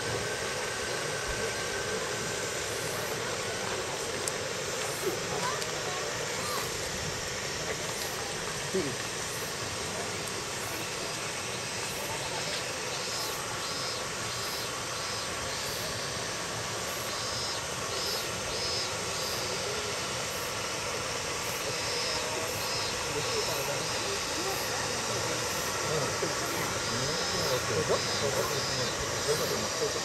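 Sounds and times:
faint very high pulses: 0:00.0 - 0:30.0
steady background hiss: 0:00.0 - 0:30.0.

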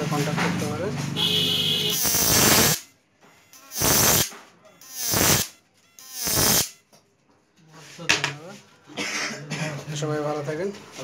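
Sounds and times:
electric arc buzzing: 0:01.4 - 0:02.9, 0:03.5 - 0:06.8.

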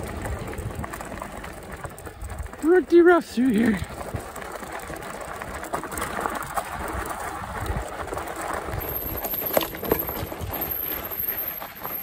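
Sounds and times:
bike knocks and rattles: 0:03.8 - 0:12.0.

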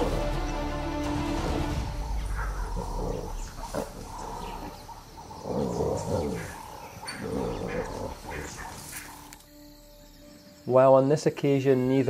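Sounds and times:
animals growling and snarling: 0:00.0 - 0:09.5.

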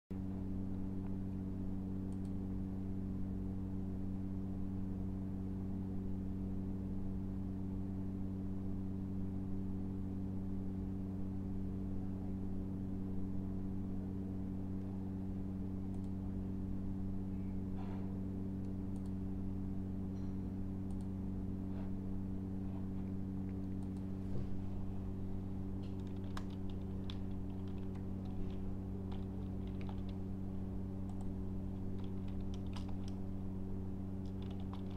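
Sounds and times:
low electrical hum: 0:00.1 - 0:34.9
computer keyboard typing: 0:25.9 - 0:30.2, 0:31.0 - 0:33.3, 0:34.2 - 0:34.9.

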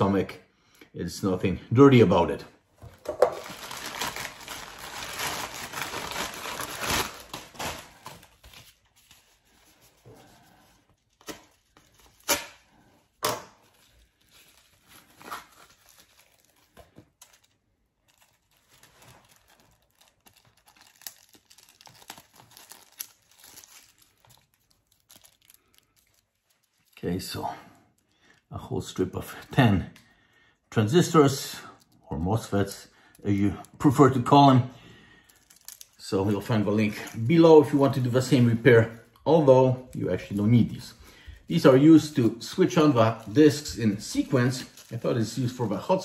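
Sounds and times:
envelope rustling: 0:02.8 - 0:27.0, 0:39.8 - 0:46.0
mailer bag tearing and crinkling: 0:03.4 - 0:09.5, 0:13.6 - 0:26.8, 0:41.6 - 0:46.0.

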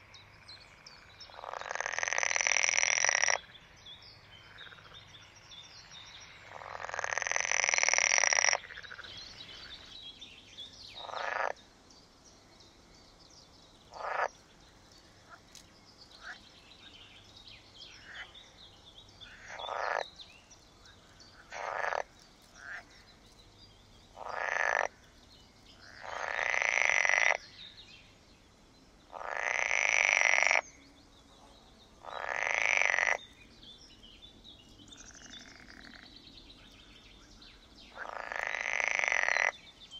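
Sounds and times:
distant frog calls: 0:00.0 - 0:09.9, 0:10.9 - 0:11.8, 0:13.8 - 0:18.6, 0:19.2 - 0:23.2, 0:24.1 - 0:28.2, 0:29.1 - 0:30.8, 0:31.4 - 0:33.6, 0:34.9 - 0:39.8
frogs croaking loudly: 0:00.7 - 0:03.5, 0:04.4 - 0:05.0, 0:06.4 - 0:09.9, 0:11.0 - 0:11.6, 0:13.9 - 0:14.4, 0:18.0 - 0:18.4, 0:19.2 - 0:20.1, 0:21.3 - 0:22.9, 0:24.2 - 0:25.0, 0:25.8 - 0:27.6, 0:29.1 - 0:30.8, 0:32.0 - 0:33.3, 0:35.0 - 0:36.1, 0:37.9 - 0:39.6.

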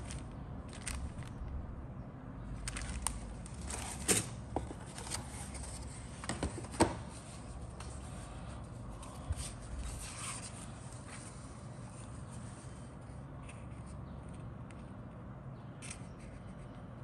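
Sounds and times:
cellophane bag crinkling: 0:00.0 - 0:01.5, 0:02.6 - 0:04.1.

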